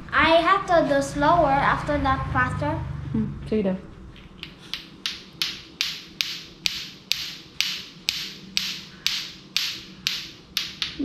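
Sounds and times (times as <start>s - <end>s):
clacker toy balls clacking: 4.4s - 11.0s.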